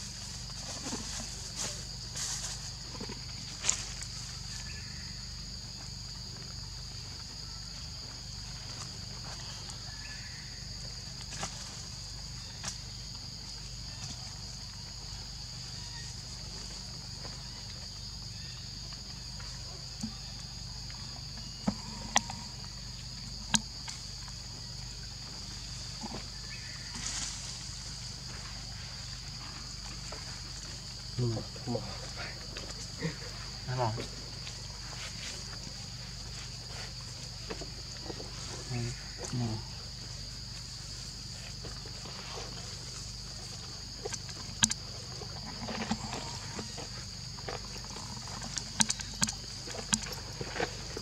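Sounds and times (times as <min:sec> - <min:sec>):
high-pitched insect drone: 0:00.0 - 0:06.2.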